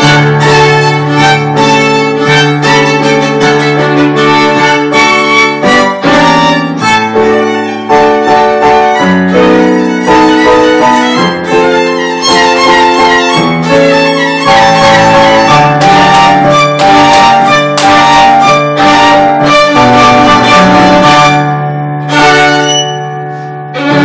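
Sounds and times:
upright piano chords: 0:00.0 - 0:24.0
violin playing a dance tune: 0:00.0 - 0:24.0.

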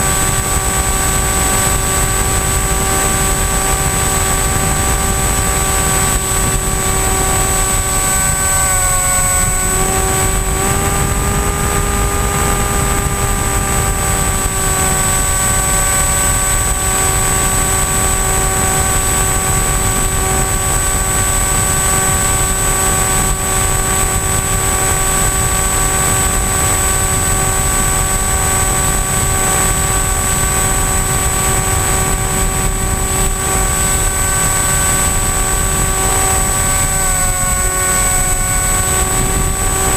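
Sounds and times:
electric motor and propeller whine: 0:00.0 - 0:39.9
wind noise: 0:00.0 - 0:39.9.

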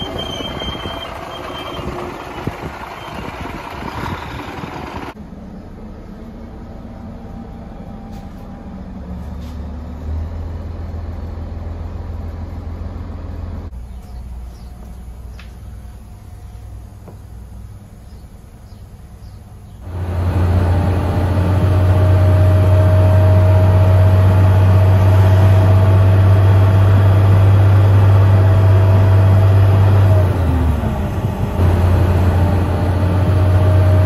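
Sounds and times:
squealing tone: 0:00.0 - 0:02.2
diesel engine droning: 0:00.0 - 0:34.0.

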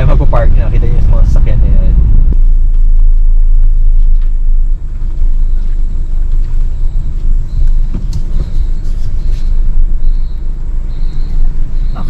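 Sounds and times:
vehicle rumbling slowly: 0:00.0 - 0:12.0
faint high beeps: 0:05.3 - 0:12.0.

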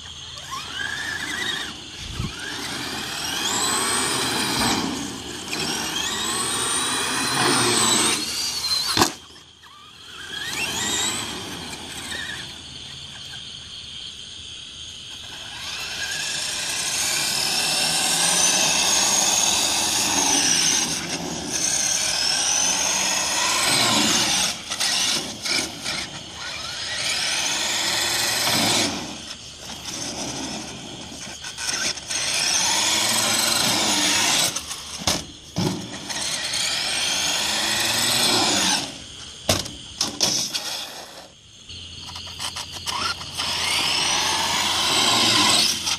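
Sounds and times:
electric motor whining: 0:00.0 - 0:12.8, 0:15.2 - 0:41.3, 0:42.0 - 0:45.9.

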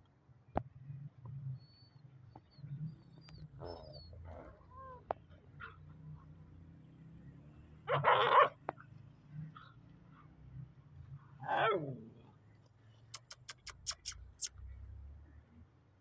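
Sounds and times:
dog snarling bark: 0:07.9 - 0:08.6, 0:11.4 - 0:12.2
sharp clicks: 0:13.1 - 0:14.5.

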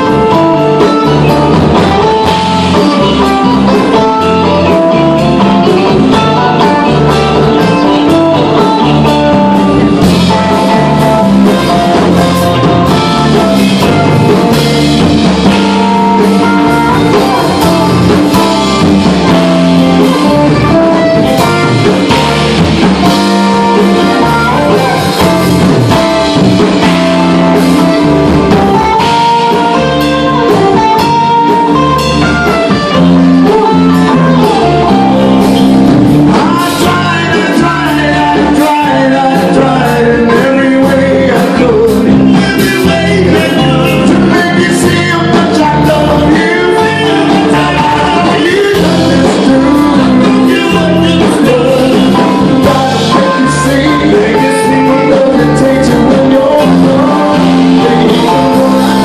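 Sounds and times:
bass: 0:00.0 - 0:59.0
drums: 0:00.0 - 0:59.0
electric guitars: 0:00.0 - 0:59.0.

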